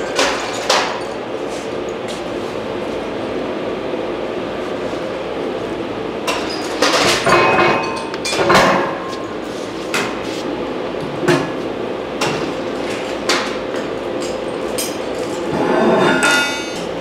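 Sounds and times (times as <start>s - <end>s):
steady shop hum: 0.0s - 17.0s.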